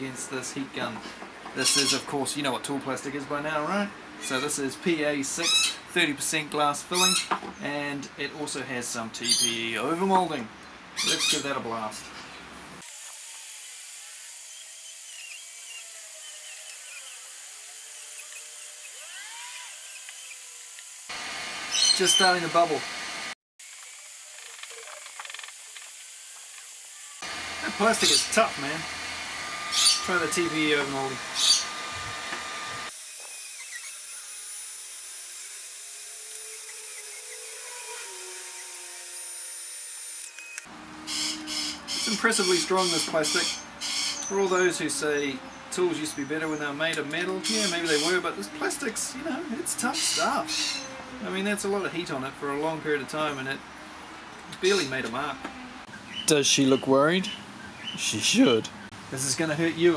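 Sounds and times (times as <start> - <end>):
heat gun fan blowing: 27.2 - 33.0.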